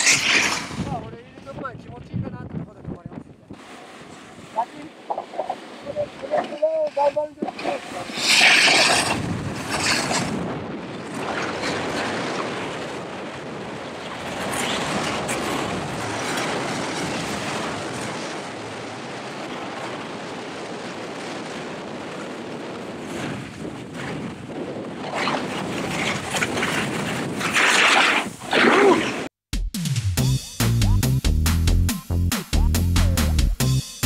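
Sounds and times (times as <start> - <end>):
snowboards scraping on snow: 0.0 - 1.0, 3.6 - 13.1, 14.1 - 18.2, 21.4 - 29.3
wind on microphone: 0.0 - 29.0.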